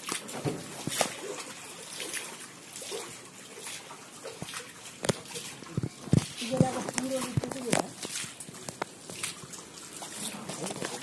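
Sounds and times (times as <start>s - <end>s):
water splashing and trickling: 0.0s - 11.0s.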